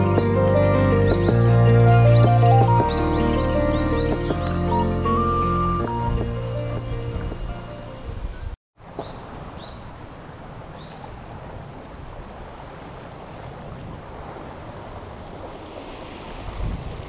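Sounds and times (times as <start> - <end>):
background music: 0.0 - 8.3
waves: 0.0 - 17.0
seaside wind: 5.5 - 17.0.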